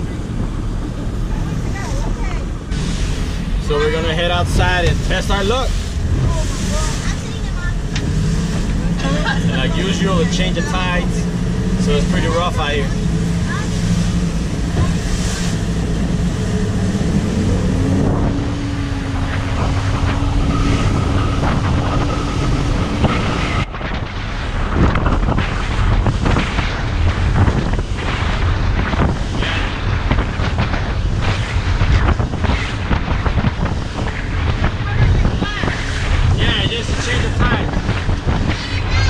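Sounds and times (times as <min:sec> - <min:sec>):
boat engine hum: 0:00.0 - 0:39.0
wind buffeting microphone: 0:00.0 - 0:39.0
water splashing and hull slaps: 0:04.3 - 0:39.0.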